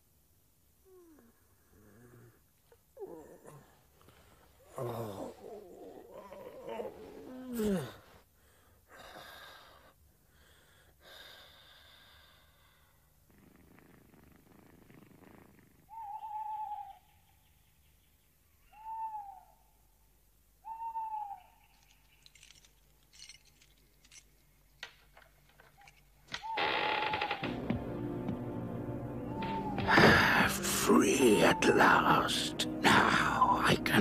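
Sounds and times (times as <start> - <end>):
cat purring: 13.2 - 16.0
owl hooting: 15.9 - 17.5, 18.6 - 19.9, 20.6 - 22.0, 26.3 - 27.6, 29.2 - 34.0.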